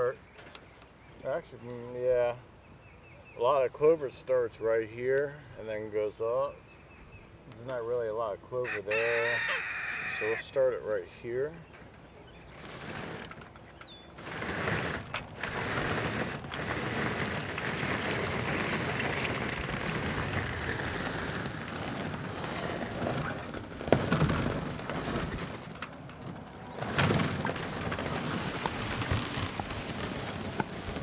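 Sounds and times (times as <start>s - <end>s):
frame scraping over grass: 7.7s - 31.0s.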